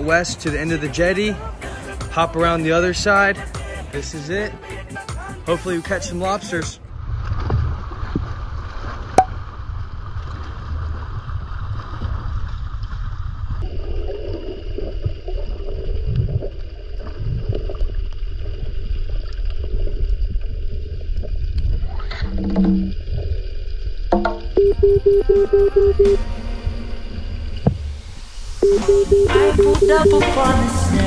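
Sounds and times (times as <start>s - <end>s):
muffled underwater rumble: 6.8s - 29.9s
water sloshing and gurgling: 6.8s - 29.9s.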